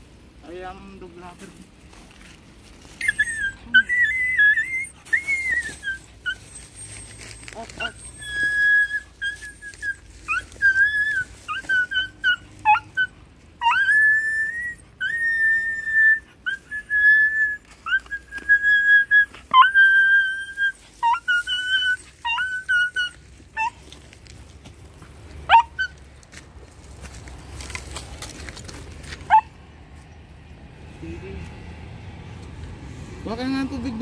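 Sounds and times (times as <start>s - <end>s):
puppy whining: 2.9s - 24.0s, 25.5s - 26.0s, 29.2s - 29.6s.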